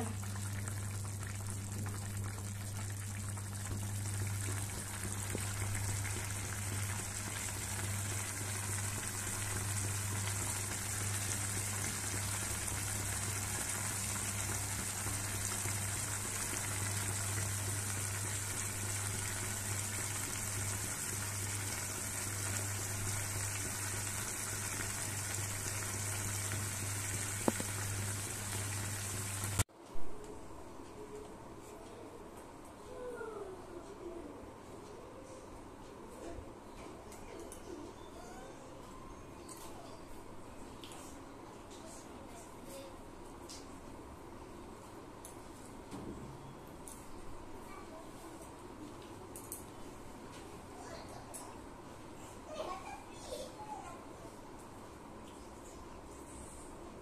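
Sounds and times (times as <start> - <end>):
curry bubbling and hissing: 0.0 - 29.7.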